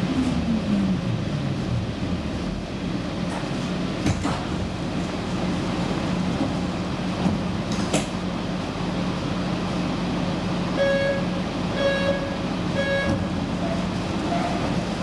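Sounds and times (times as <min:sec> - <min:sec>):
metro train rumble and hum: 0:00.0 - 0:15.0
short electronic beeps: 0:10.8 - 0:13.2.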